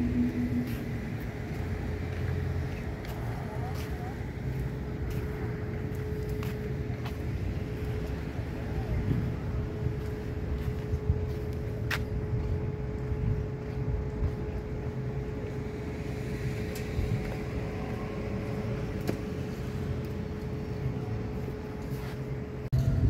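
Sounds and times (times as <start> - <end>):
constant hum: 0.0 - 23.0
low outdoor rumble: 0.0 - 23.0.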